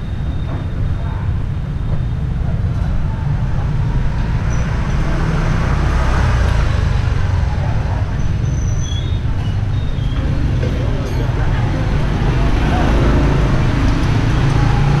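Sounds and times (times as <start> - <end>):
low traffic rumble: 0.0 - 15.0
motor scooters passing: 9.2 - 15.0.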